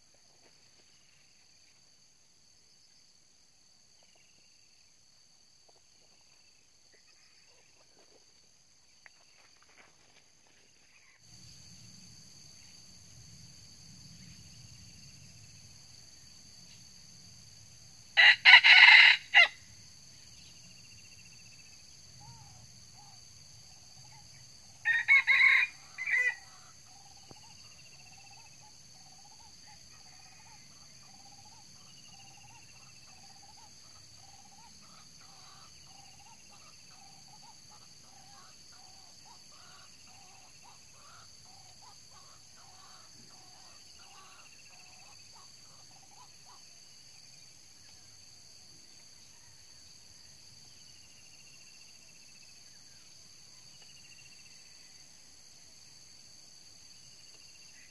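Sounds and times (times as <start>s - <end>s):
rooster crowing: 18.2s - 19.6s, 24.8s - 26.6s.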